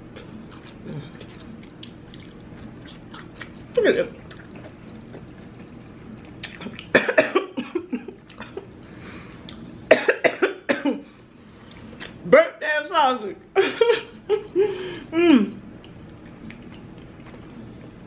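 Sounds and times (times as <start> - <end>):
woman coughing: 6.9 - 8.6, 9.9 - 11.0.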